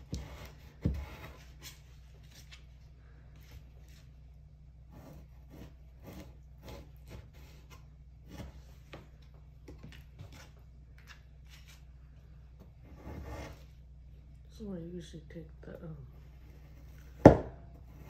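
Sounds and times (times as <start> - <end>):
knife scraping cuts: 4.9 - 8.6.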